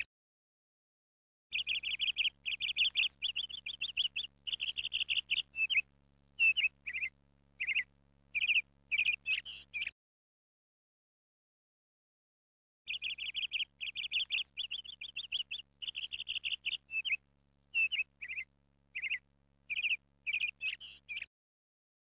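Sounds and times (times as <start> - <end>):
faint steady hum: 1.5 - 9.9, 12.9 - 21.3
small bird chirping: 1.5 - 10.0, 12.9 - 21.3.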